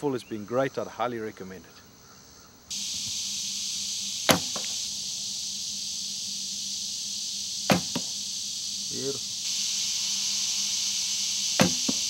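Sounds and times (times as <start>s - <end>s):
arrow thudding into foam target: 4.3s - 4.6s, 7.7s - 8.1s, 11.6s - 12.0s
bow string snapping: 11.6s - 12.0s.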